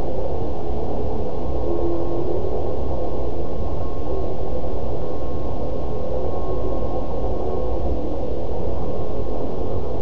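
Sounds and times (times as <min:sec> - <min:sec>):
dark ambient synth drone: 0:00.0 - 0:10.0.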